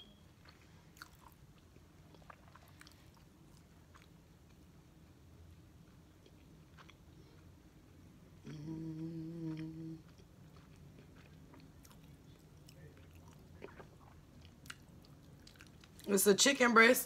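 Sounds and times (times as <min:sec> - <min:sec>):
woman chewing crispy food: 0:00.4 - 0:16.1
woman humming mmm: 0:08.4 - 0:10.1.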